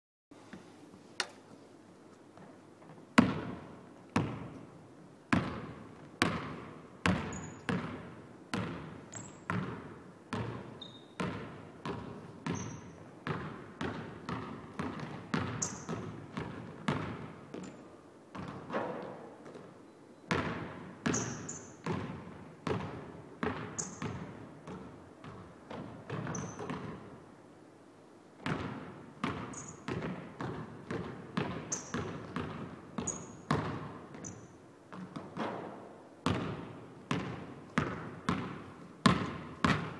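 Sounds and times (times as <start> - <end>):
basketball bouncing on hardwood: 3.2 - 3.6, 4.2 - 4.5, 5.3 - 17.7, 18.3 - 19.7, 20.3 - 27.0, 28.4 - 39.9
sneaker squeaks: 7.2 - 7.8, 9.1 - 9.6, 10.7 - 11.3, 12.4 - 13.0, 15.5 - 16.0, 21.1 - 21.8, 23.7 - 24.2, 26.2 - 26.7, 29.5 - 29.9, 31.7 - 32.1, 33.0 - 34.6.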